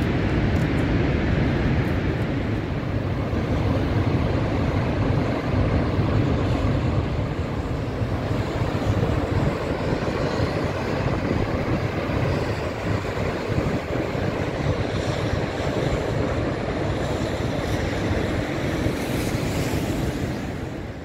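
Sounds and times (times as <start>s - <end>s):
wind noise on microphone: 0.0s - 21.0s.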